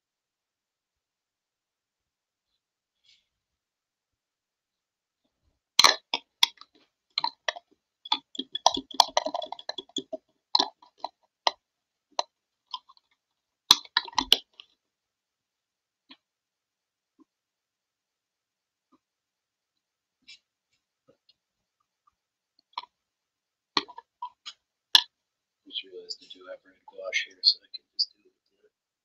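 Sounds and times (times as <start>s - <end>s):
objects clicking on glass desk: 5.8s - 11.2s, 13.7s - 14.5s.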